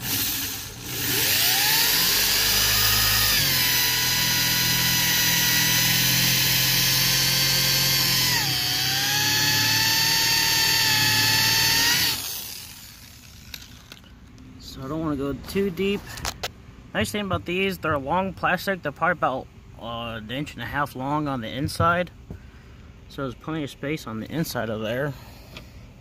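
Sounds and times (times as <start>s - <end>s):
electric drill boring plastic: 0.0s - 14.1s.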